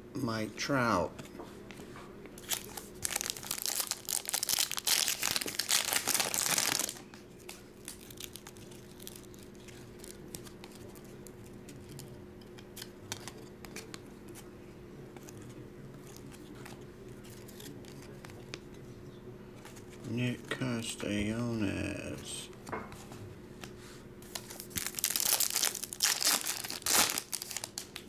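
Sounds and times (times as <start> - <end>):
cards rustling and clicking: 2.3 - 12.1, 15.2 - 18.6, 23.6 - 28.0
foil wrapper tearing and crinkling: 2.4 - 11.0, 24.3 - 28.0.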